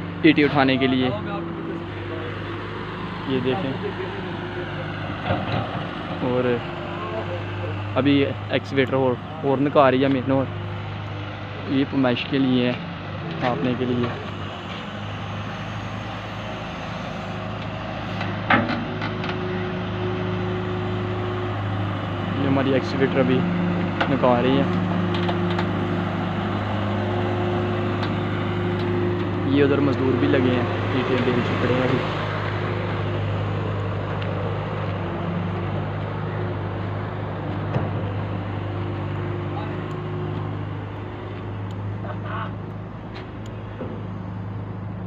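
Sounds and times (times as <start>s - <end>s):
diesel engine running: 0.0s - 45.0s.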